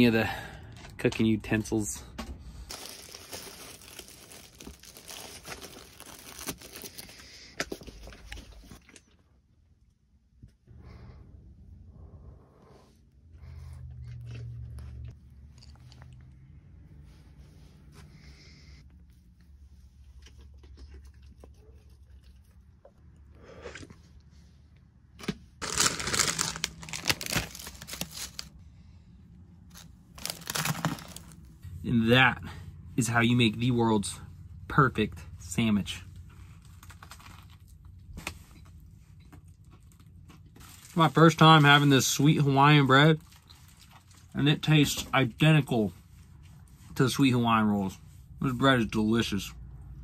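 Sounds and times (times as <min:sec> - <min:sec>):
plastic bag crinkling: 0:02.7 - 0:07.2, 0:25.6 - 0:28.5, 0:29.7 - 0:31.5.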